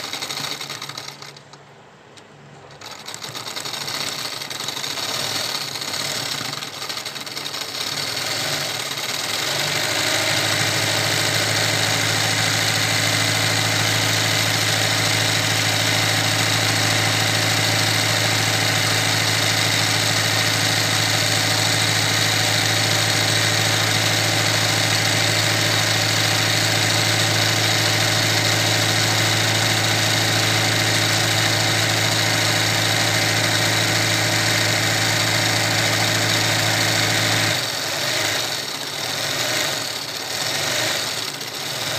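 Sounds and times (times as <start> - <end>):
sewing machine running: 0.0 - 1.6, 2.6 - 41.9.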